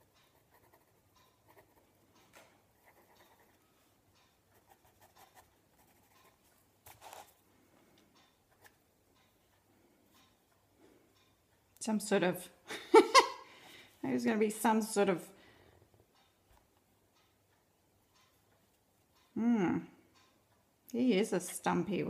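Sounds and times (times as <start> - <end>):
pen scratching on paper: 0.3 - 1.9, 2.8 - 3.6.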